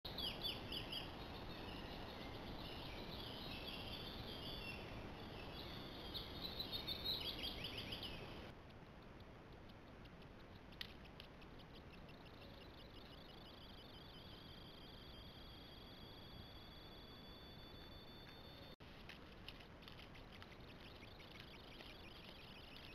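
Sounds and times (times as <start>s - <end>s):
birds chirping and singing: 0.1s - 8.5s, 10.5s - 15.5s
faint ticking: 8.4s - 14.9s.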